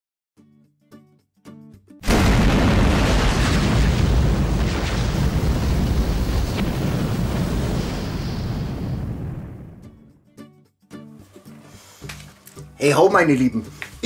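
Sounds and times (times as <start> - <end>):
explosion with fire rush: 2.0 - 10.0.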